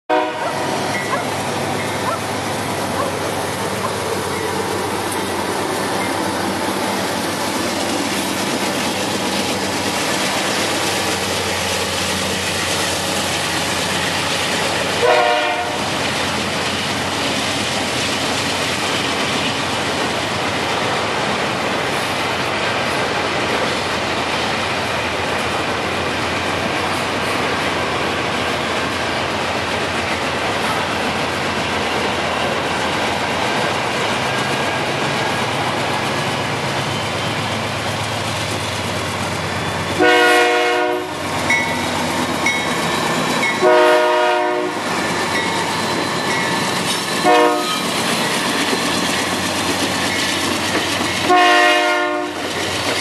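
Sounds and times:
locomotive horn blast: 0.1 - 1.1, 15.0 - 15.9, 40.0 - 41.2, 43.6 - 44.8, 47.2 - 47.8, 51.3 - 52.4
diesel locomotive engine: 0.1 - 53.0
train wheels rumbling on rail: 0.1 - 53.0.

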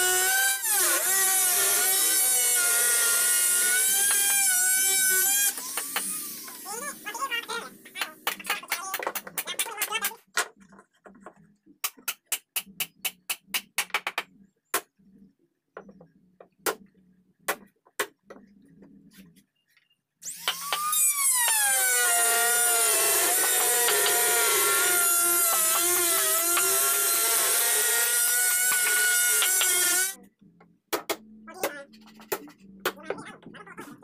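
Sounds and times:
trim router whining: 20.3 - 30.2.

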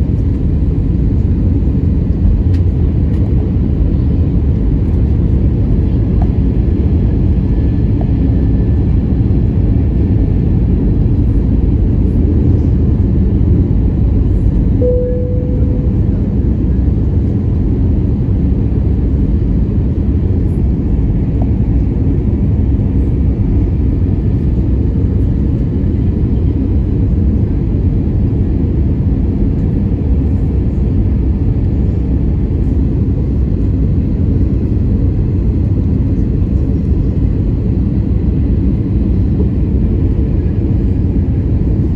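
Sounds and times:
jet engines roaring in cabin: 0.0 - 41.9
short steady tone: 14.8 - 16.5.

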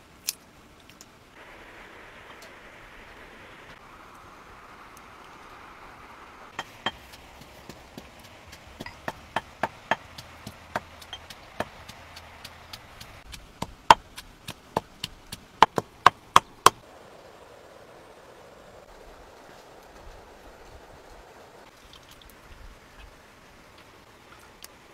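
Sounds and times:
stone pestle pounding in mortar: 6.6 - 16.8.

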